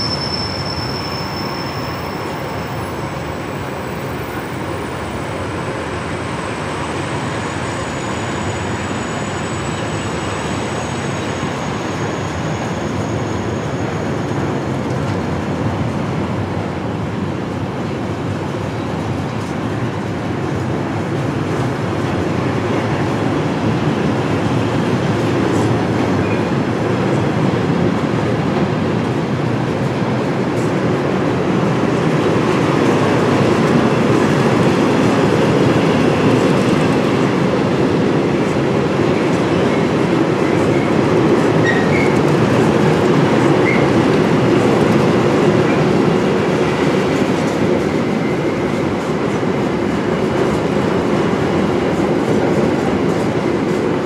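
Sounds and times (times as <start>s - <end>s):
train wheels rumbling and rattling: 0.0s - 54.0s.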